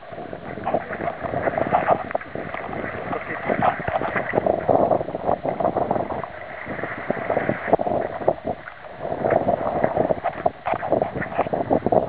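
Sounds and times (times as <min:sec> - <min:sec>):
water lapping against rocks: 0:00.0 - 0:12.0.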